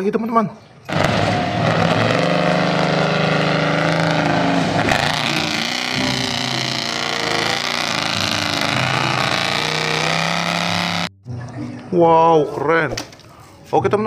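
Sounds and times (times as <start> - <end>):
engine running hard: 0.9 - 11.1.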